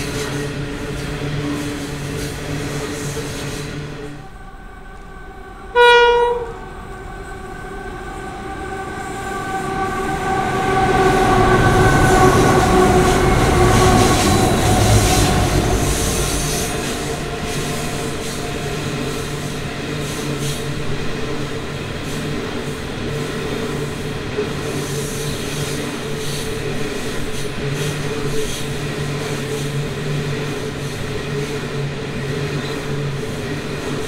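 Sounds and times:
train wagons rumbling and clattering: 0.0s - 5.7s, 6.3s - 34.0s
locomotive horn blast: 5.6s - 6.8s.

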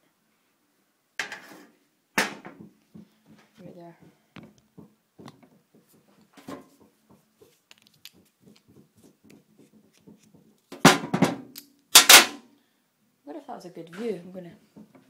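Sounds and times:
hands rustling against microphone: 2.9s - 10.7s.

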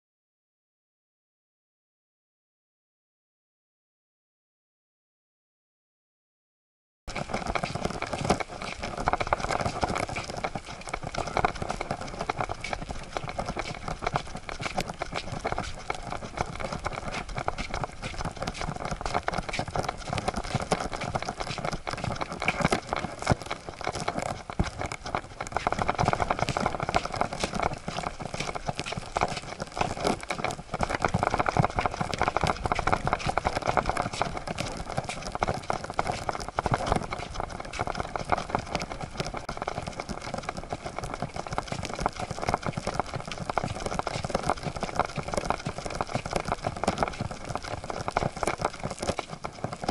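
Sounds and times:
dog paws clattering on wooden boards: 7.1s - 40.0s.

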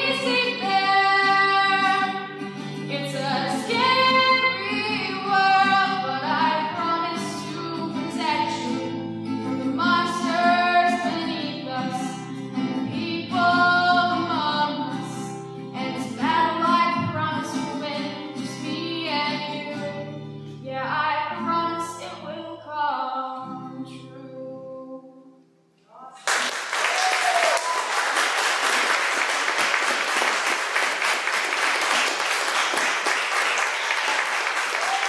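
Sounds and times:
person singing: 0.0s - 8.8s, 9.6s - 20.1s
strummed acoustic guitar: 0.0s - 22.6s
applause: 26.2s - 35.0s.

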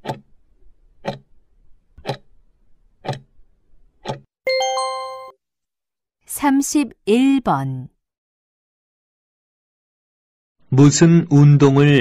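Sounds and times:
clock ticks: 0.0s - 0.2s, 1.0s - 1.3s, 2.0s - 2.2s, 3.0s - 3.3s, 4.0s - 4.2s
bright ringing chime: 4.5s - 5.4s.

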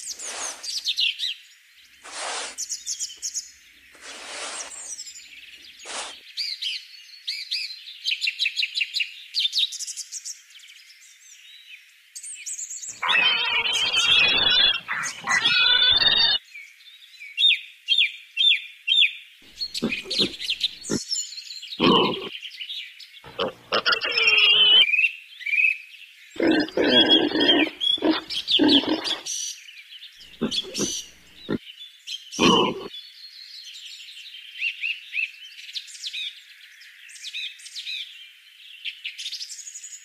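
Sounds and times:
birds chirping: 12.9s - 16.4s, 19.5s - 21.0s, 21.8s - 22.3s, 23.3s - 24.8s, 26.4s - 29.3s, 30.2s - 31.6s, 32.4s - 32.9s.

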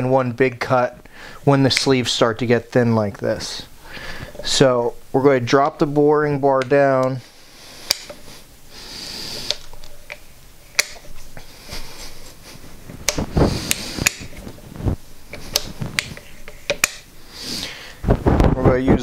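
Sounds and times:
metal clicks: 9.4s - 11.1s, 15.3s - 17.1s.

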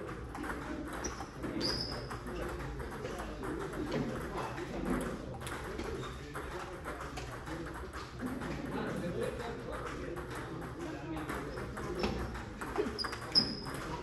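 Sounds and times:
murmur of voices: 0.0s - 14.0s
short high squeaks: 1.0s - 2.2s, 12.9s - 13.8s
table tennis ball clicks: 9.8s - 14.0s.

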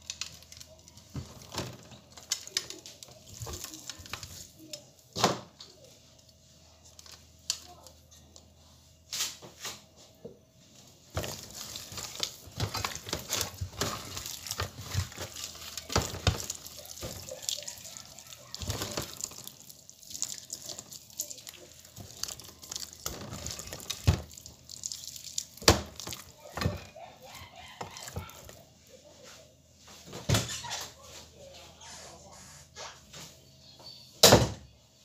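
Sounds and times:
hands kneading raw chicken: 0.0s - 5.0s, 11.1s - 29.5s.

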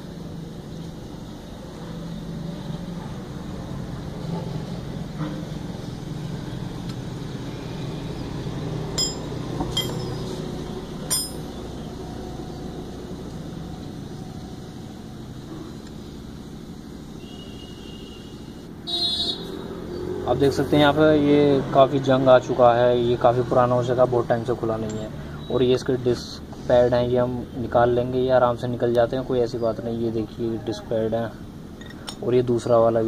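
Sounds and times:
road traffic rumble: 0.0s - 33.0s
metallic clinks of tools: 9.0s - 10.3s, 11.1s - 11.6s.

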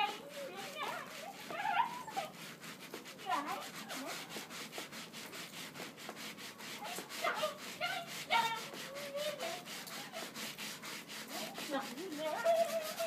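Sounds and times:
quick rubbing strokes: 0.0s - 13.0s
faint voices: 11.3s - 13.0s.

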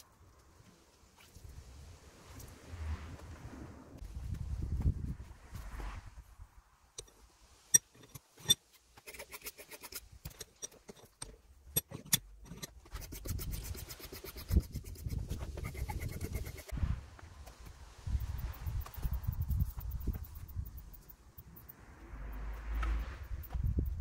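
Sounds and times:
quick scraping ticks: 7.7s - 16.7s.

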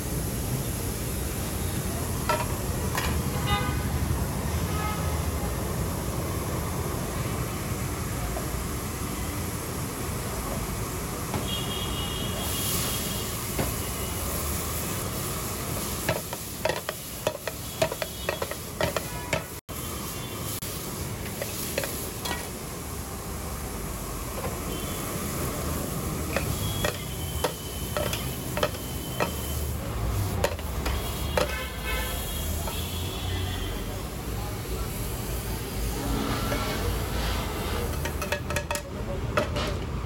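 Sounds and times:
vegetables sizzling in a pan: 12.4s - 38.6s
metal spatula scraping a pan: 26.3s - 29.6s, 35.8s - 38.7s.

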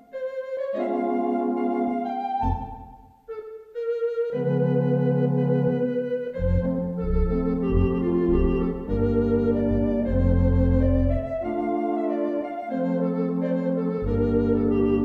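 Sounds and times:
theatre organ chords: 0.8s - 3.1s, 4.4s - 15.0s
deep organ bass notes: 2.4s - 3.0s, 4.4s - 15.0s.

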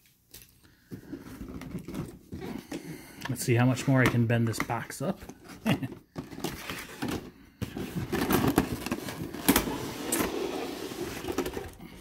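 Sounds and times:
plastic tray scraping on cardboard: 7.8s - 11.7s.

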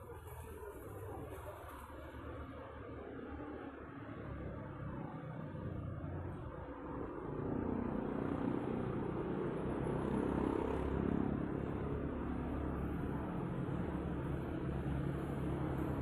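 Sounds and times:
outdoor night ambience: 0.0s - 16.0s.

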